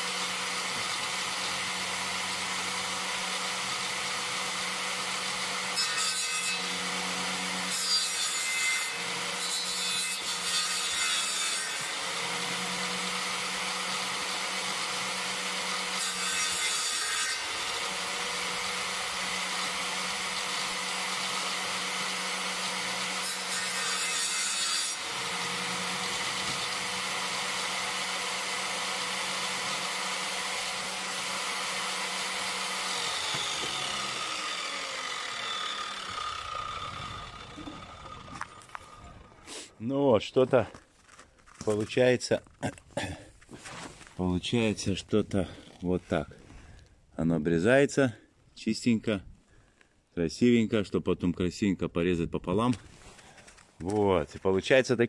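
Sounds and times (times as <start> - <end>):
circular saw cutting wood: 0.0 - 39.8.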